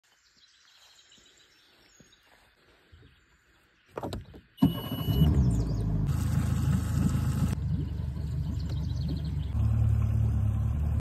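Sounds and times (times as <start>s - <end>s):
engine running loudly: 5.3s - 11.0s.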